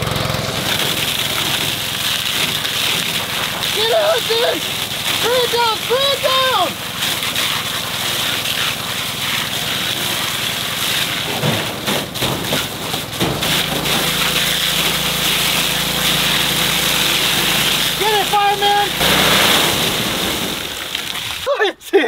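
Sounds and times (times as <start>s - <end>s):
hose spraying water: 0.0s - 21.6s.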